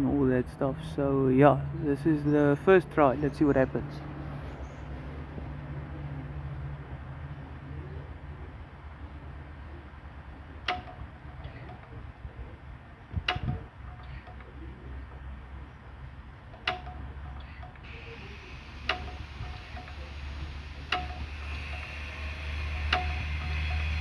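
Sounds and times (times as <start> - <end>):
sharp engine tick: 17.8 - 24.0.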